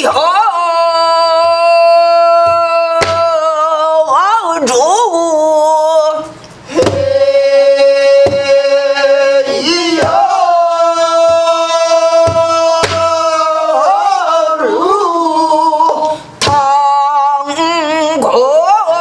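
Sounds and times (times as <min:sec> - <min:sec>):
person singing long wavering notes: 0:00.0 - 0:19.0
barrel drum strokes: 0:06.7 - 0:07.2.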